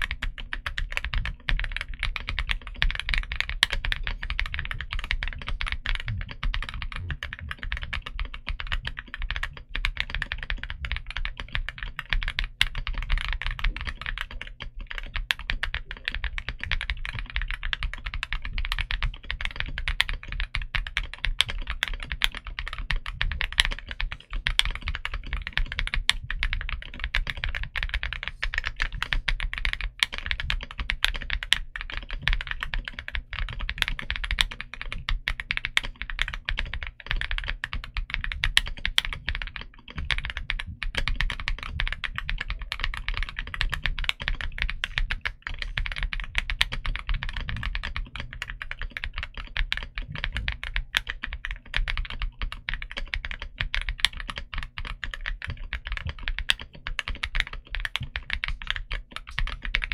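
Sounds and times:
mechanical keyboard typing: 0.0 - 59.9.

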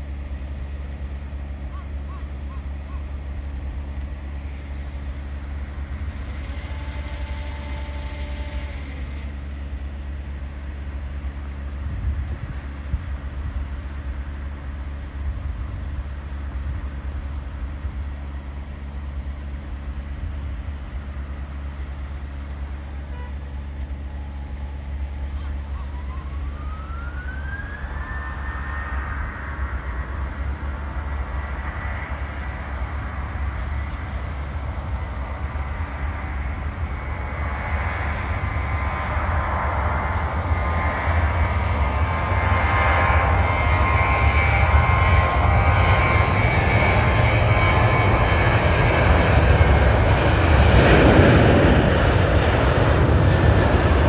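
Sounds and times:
high engine whine: 0.0 - 54.0
low engine rumble: 0.0 - 54.0
jet engines spooling up: 23.6 - 54.0.

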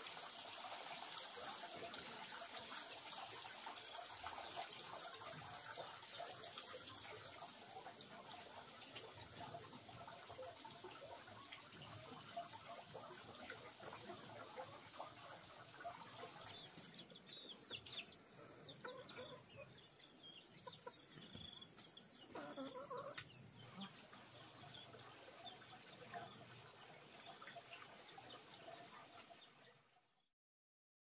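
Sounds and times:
faint chickens clucking: 11.0 - 29.4.

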